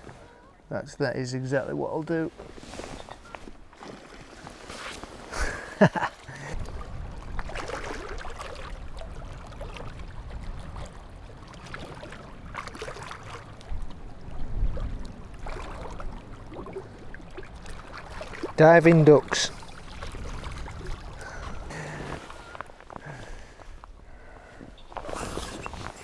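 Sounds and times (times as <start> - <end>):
lapping water: 5.3 - 25.6
ducks splashing in water: 6.2 - 14.0, 14.7 - 18.6.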